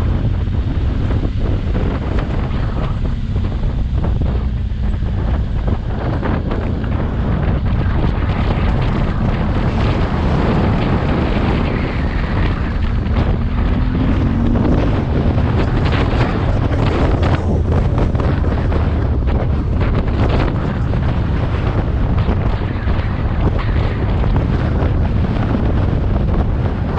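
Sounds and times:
motorcycle engine running: 0.0 - 26.9
wind buffeting microphone: 0.0 - 26.9.

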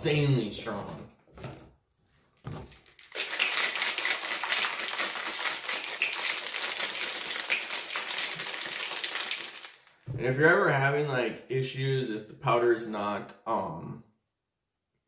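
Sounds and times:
shaker cup rattling: 2.6 - 10.0.

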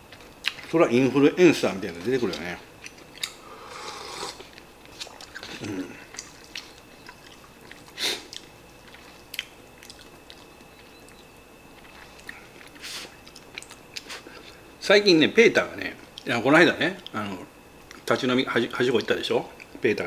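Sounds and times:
person chewing: 0.0 - 0.8, 2.2 - 14.7.

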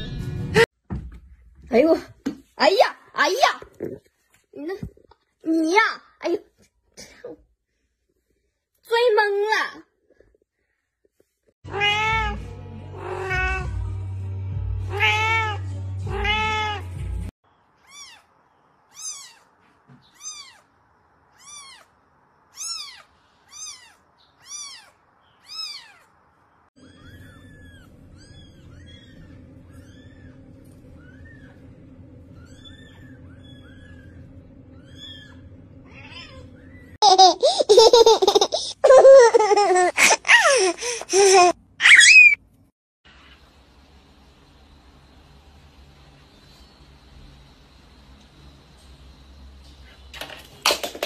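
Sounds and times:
cat meowing loudly: 11.7 - 12.4, 13.0 - 13.7, 14.9 - 16.9
kitten crying harshly: 11.7 - 12.4, 13.0 - 13.7, 14.9 - 16.8, 17.8 - 18.3, 18.9 - 19.4, 21.4 - 21.9, 22.5 - 26.0, 26.8 - 30.4, 34.8 - 36.8, 41.8 - 42.4
low hum: 26.9 - 37.0.

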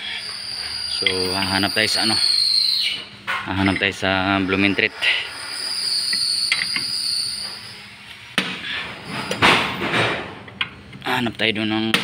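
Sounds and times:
high-pitched whine: 0.0 - 12.0.

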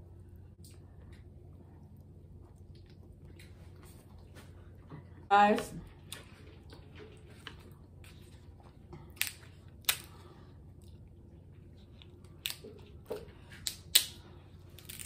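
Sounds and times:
crab shell cracking: 9.1 - 10.2, 11.9 - 12.8, 13.6 - 15.0.

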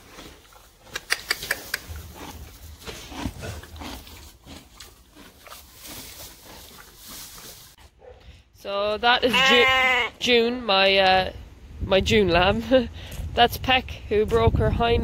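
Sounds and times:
pony chewing hay: 0.0 - 0.9, 1.6 - 8.2.

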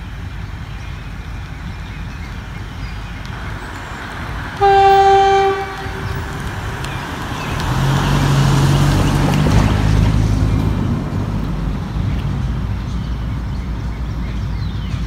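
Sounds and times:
diesel locomotive engine drone: 0.0 - 15.0
locomotive horn blast: 3.6 - 7.6.

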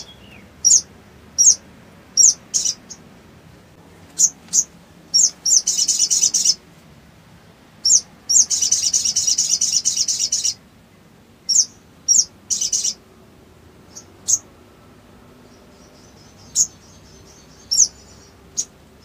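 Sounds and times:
sunbird singing chips and trills: 0.0 - 3.1, 4.2 - 6.6, 7.8 - 10.6, 11.4 - 13.0, 13.8 - 14.6, 15.4 - 19.0.

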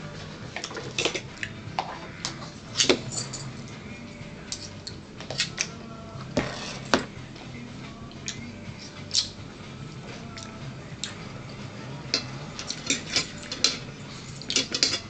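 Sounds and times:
steady low hum: 0.0 - 15.0
spoons clinking against bowls: 12.1 - 15.0.

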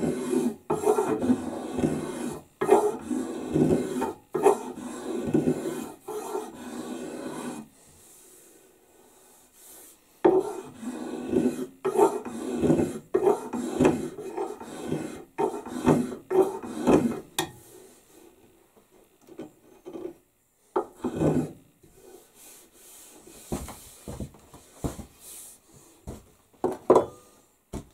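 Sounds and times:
scraping along wooden axe handle: 0.0 - 7.7, 10.2 - 17.3, 20.8 - 25.4.

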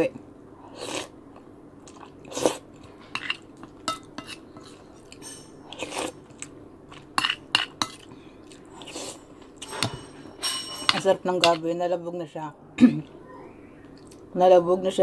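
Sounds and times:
chewing and slurping soup: 0.7 - 9.9.

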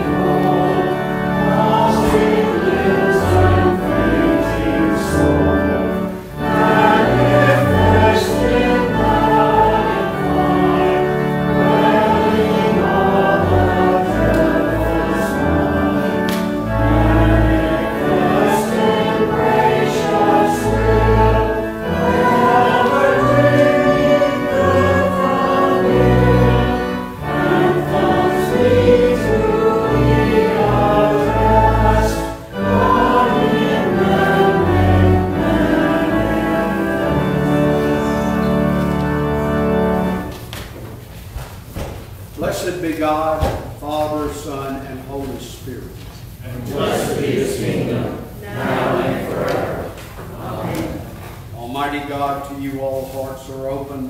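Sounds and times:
congregation singing a hymn: 0.0 - 40.7, 41.6 - 54.0
instrumental accompaniment: 0.0 - 42.4.

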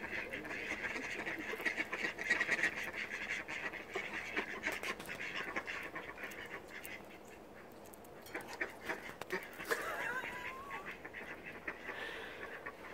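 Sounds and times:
squirrel gnawing nuts: 0.8 - 10.9.

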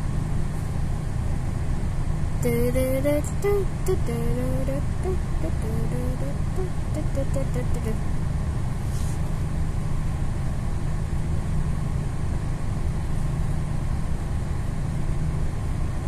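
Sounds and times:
bus engine idling: 0.0 - 11.9.

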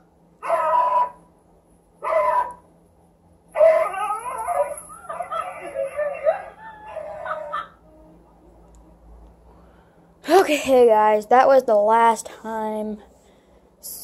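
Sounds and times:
dog barking and howling: 0.4 - 1.3, 2.0 - 2.7, 3.5 - 7.8.

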